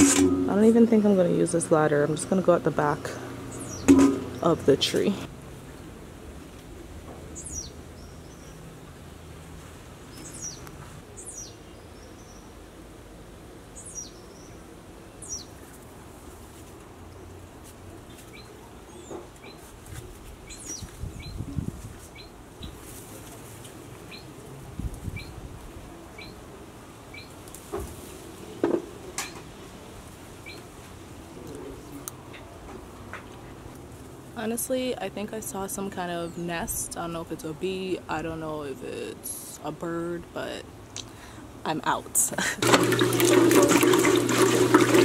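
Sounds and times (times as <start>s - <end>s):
birds chirping: 0.5s - 5.3s, 7.3s - 8.6s, 10.1s - 12.6s, 13.8s - 15.6s
branches rustling: 19.3s - 25.8s.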